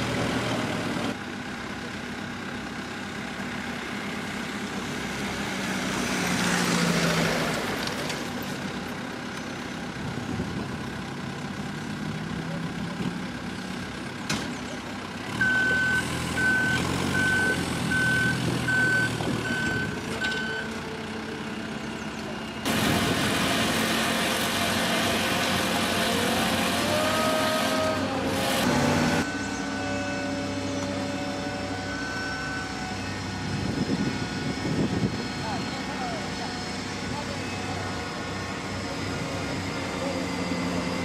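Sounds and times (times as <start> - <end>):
heavy machinery engine hum: 0.0 - 41.0
warning alarm beeping: 29.2 - 30.3.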